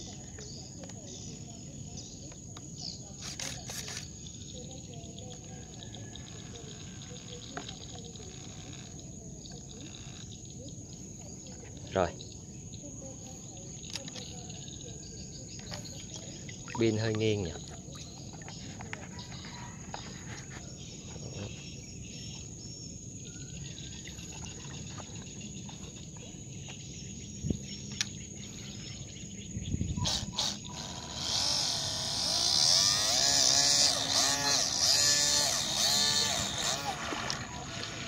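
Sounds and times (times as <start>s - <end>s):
boat motor and water-jet pump: 2.6s - 12.2s, 15.5s - 21.6s, 23.8s - 26.4s, 29.9s - 38.0s.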